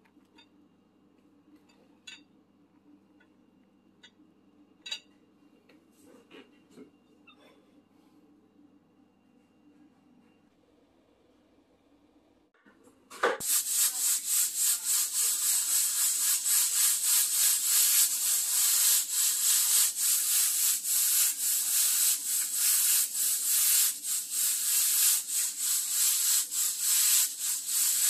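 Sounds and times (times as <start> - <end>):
pressure cooker venting steam: 13.4 - 28.0.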